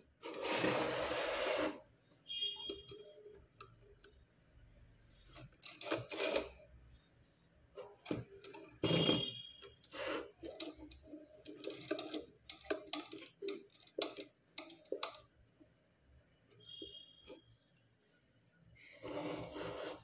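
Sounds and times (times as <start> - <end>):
wooden rig clicks and knocks: 10.4 - 15.3.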